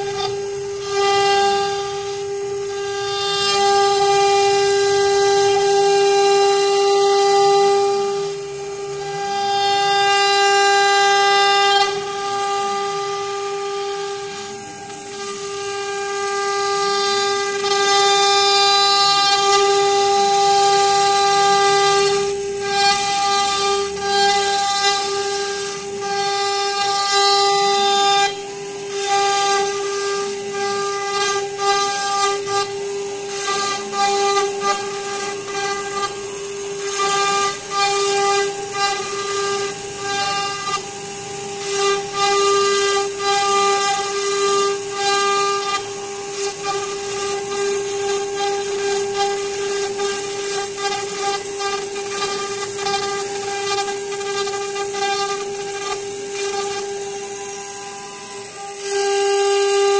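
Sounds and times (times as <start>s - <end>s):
bit cutting wood hissing: 0.0s - 59.9s
cnc router spindle whine: 0.0s - 59.9s.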